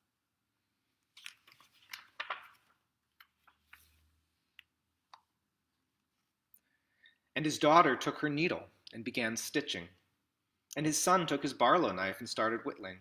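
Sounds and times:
book pages rustling: 1.1 - 4.1.

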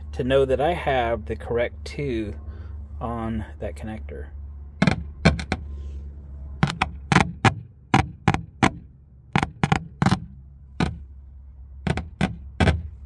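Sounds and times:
speaker popping: 4.8 - 5.7, 6.6 - 11.1, 11.8 - 13.0.

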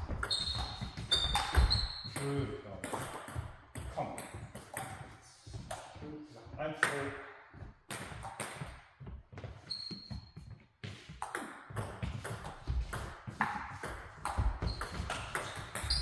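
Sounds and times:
high squeak: 0.2 - 2.2
footsteps shuffling on floor: 10.4 - 11.2.

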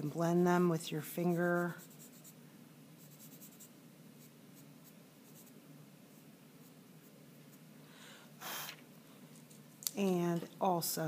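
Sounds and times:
pencil scratching on paper: 1.2 - 2.4, 3.0 - 6.8.

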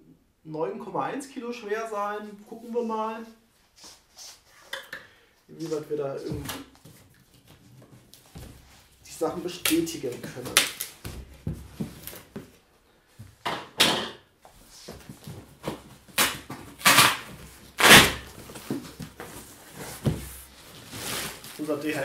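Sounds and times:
cardboard rustling: 6.3 - 12.6, 14.6 - 22.0
packing tape ripping: 9.6 - 11.0, 16.1 - 18.6.

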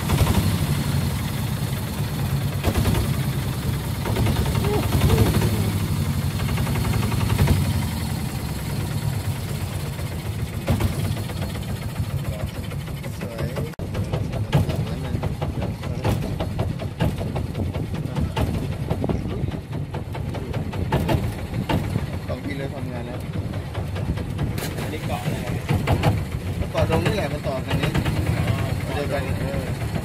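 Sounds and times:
boat engine running: 0.0 - 30.0.

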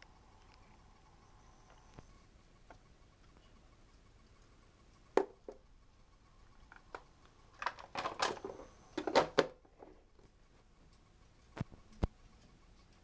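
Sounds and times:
plastic toy parts clicking: 6.7 - 10.0.

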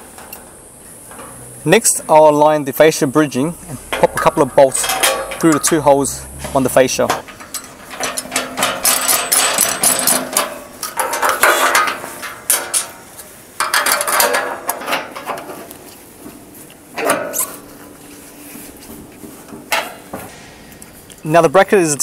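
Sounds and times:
metallic ringing: 1.1 - 11.3
steel bolts clinking on metal: 3.8 - 6.1, 7.0 - 15.5.

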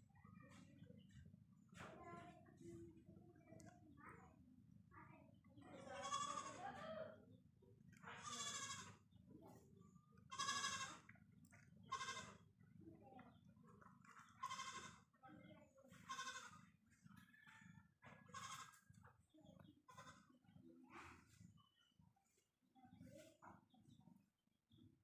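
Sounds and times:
kittens mewing: 6.0 - 6.6, 10.3 - 11.0, 14.4 - 14.9.

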